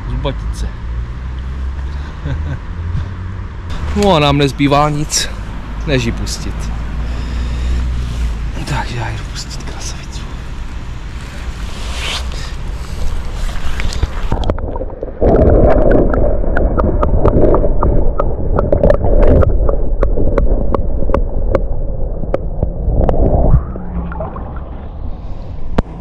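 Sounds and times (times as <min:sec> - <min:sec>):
water sloshing and gurgling: 0:10.4 - 0:26.0.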